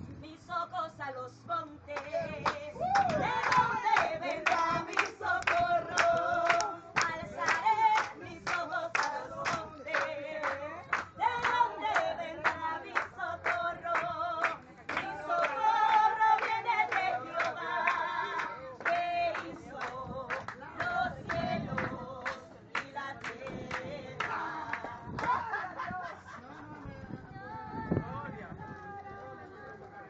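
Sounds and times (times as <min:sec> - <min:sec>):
people singing together: 0:01.6 - 0:26.4
hands clapping to a beat: 0:01.9 - 0:25.6.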